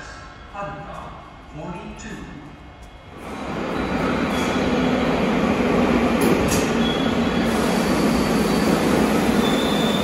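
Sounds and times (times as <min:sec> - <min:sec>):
train rumbling on rails: 0:03.1 - 0:10.0
faint wheel squeal: 0:07.7 - 0:10.0.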